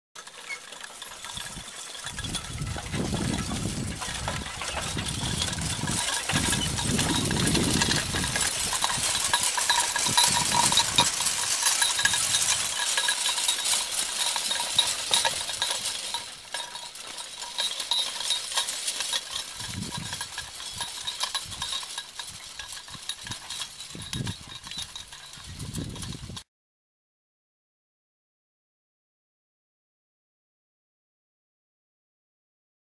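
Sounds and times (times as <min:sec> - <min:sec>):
chains and harness jingling: 0:00.2 - 0:26.4.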